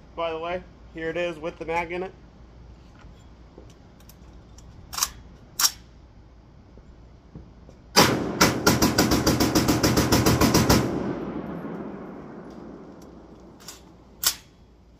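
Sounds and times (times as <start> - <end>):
rapid rifle gunfire: 8.0 - 13.0
rifle clicks: 12.4 - 14.6.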